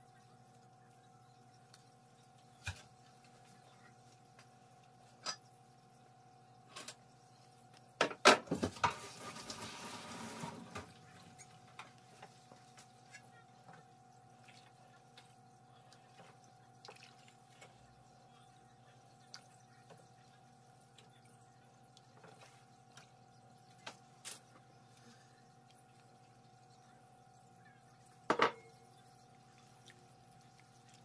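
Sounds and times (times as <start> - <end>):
faint steady hum: 0.0 - 31.0
water running: 7.0 - 31.0.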